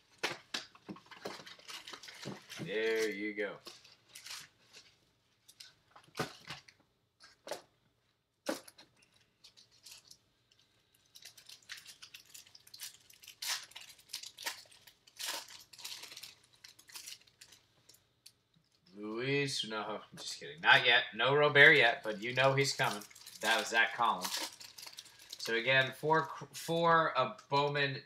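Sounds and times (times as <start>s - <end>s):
foil rustling: 1.1s - 5.0s, 10.9s - 17.7s, 22.1s - 26.0s
foil packs ripping: 11.0s - 17.6s, 22.1s - 26.0s.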